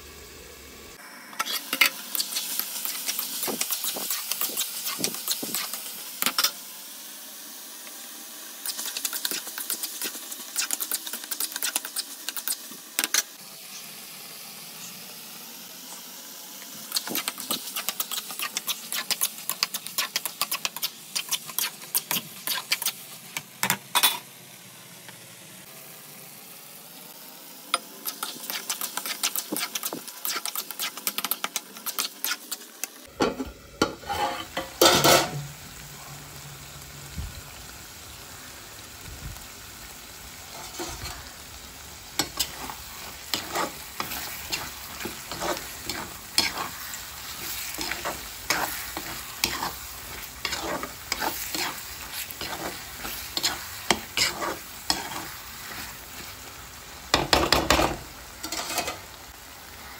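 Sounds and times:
frying sizzle: 0.0s - 59.9s
spoon scraping in a pan: 1.4s - 6.6s, 17.0s - 24.2s, 27.7s - 32.6s, 33.3s - 35.4s, 40.5s - 41.4s, 42.0s - 56.4s, 57.1s - 59.1s.

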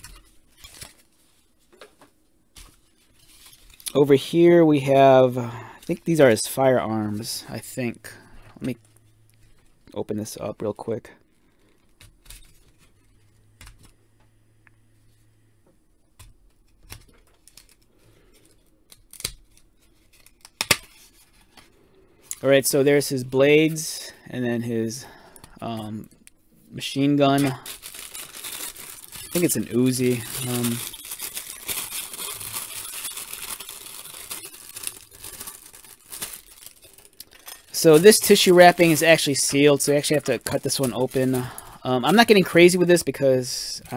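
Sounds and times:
tissue paper crinkling: 2.6s - 4.3s, 26.9s - 42.8s.

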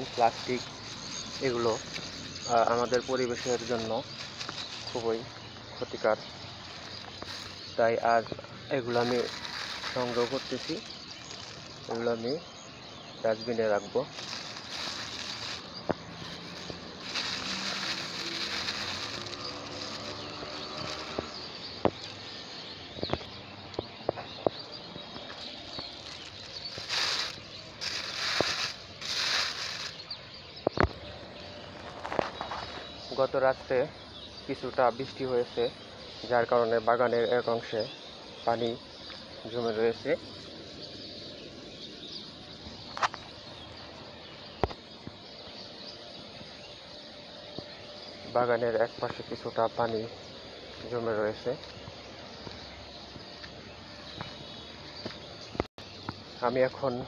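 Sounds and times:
plastic bag crackling: 0.0s - 5.6s, 6.5s - 12.4s, 13.9s - 22.1s, 25.1s - 30.3s
outdoor hiss: 0.0s - 36.5s
faint bird chirps: 0.0s - 57.0s.

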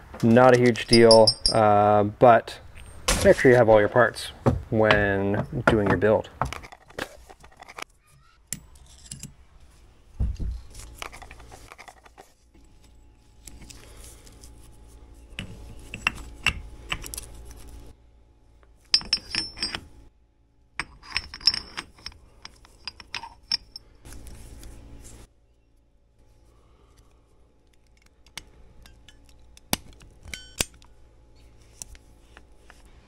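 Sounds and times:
metal parts clicking and clinking: 0.5s - 1.8s, 6.5s - 7.9s, 8.5s - 9.4s, 10.9s - 12.8s, 18.8s - 19.9s, 20.8s - 24.2s.

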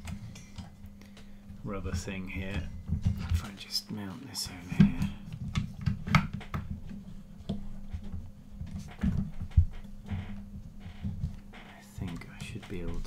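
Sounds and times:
steady low hum: 0.0s - 13.0s
plastic arm clicking and knocking: 4.7s - 11.4s.

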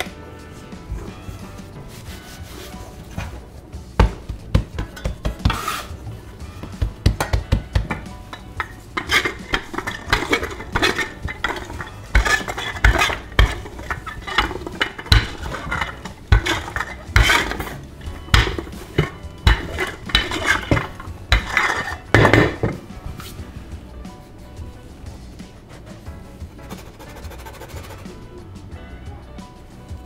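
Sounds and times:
rolling pin scraping: 0.0s - 23.5s, 24.2s - 28.2s
rolling pin knocking and thudding: 3.0s - 23.2s.

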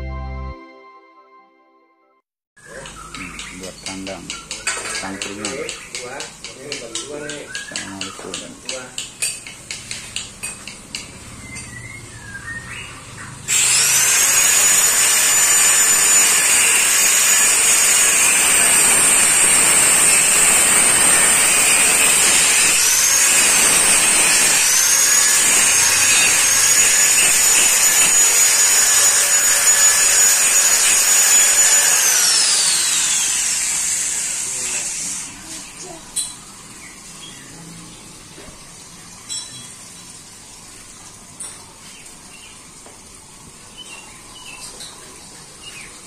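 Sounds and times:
angle grinder cutting steel: 13.5s - 35.6s.

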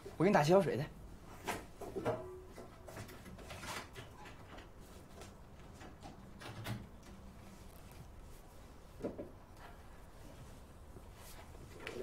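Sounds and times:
objects knocking and clattering: 1.4s - 4.8s.

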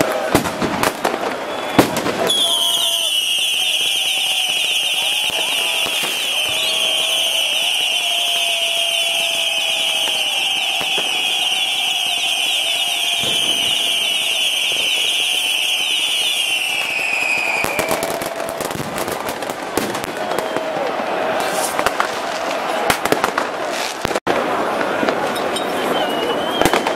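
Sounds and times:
firecracker cracks: 0.0s - 25.5s, 26.4s - 26.9s
whistling firework screeching: 0.1s - 22.0s, 25.4s - 26.9s.

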